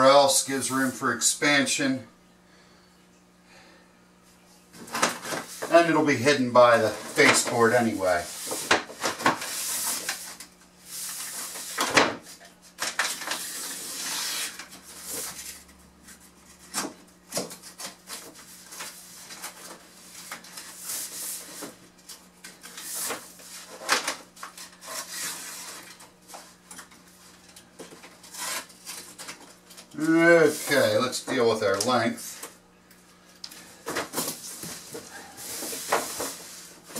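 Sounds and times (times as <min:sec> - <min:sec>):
vinyl sheet scraping on floor: 0:06.7 - 0:12.0, 0:13.1 - 0:15.6, 0:30.2 - 0:31.0.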